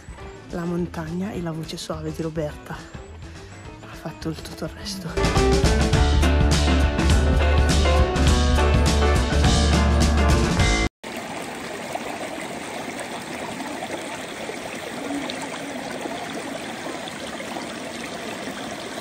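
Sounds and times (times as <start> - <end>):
background music: 0.0 - 10.9
stream flowing: 11.0 - 19.0.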